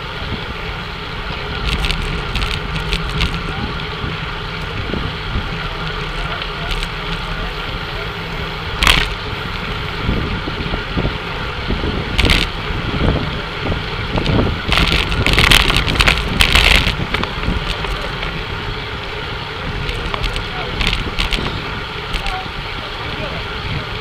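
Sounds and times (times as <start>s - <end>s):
wind buffeting microphone: 0.0s - 18.8s, 19.6s - 24.0s
bicycle tyre and road noise: 0.0s - 24.0s.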